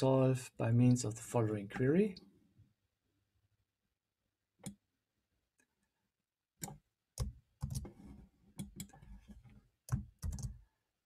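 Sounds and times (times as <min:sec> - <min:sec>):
keyboard keystrokes: 0:09.9 - 0:10.6.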